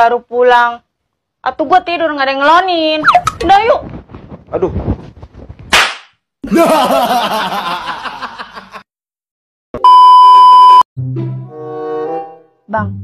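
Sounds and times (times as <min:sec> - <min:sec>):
person laughing: 0:06.4 - 0:08.8
steady beep: 0:09.8 - 0:10.8.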